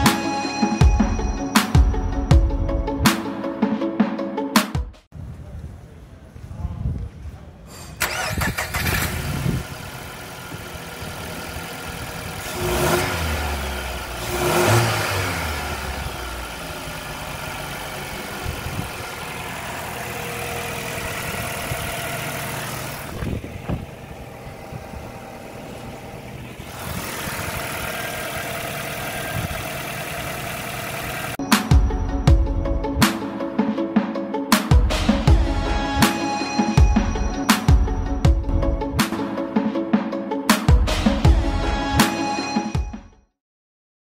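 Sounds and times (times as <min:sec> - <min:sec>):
car engine revving and idling: 0:08.0 - 0:31.4.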